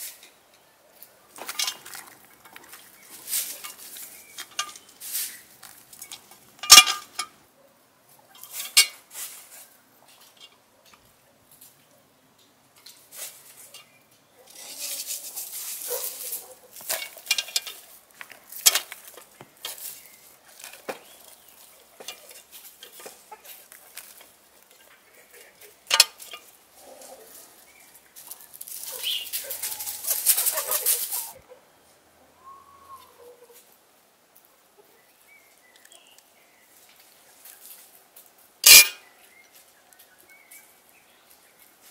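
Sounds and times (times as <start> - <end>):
vegetables rustling: 1.2 - 6.6, 12.9 - 31.4
hens clucking: 20.4 - 27.6, 28.9 - 31.6.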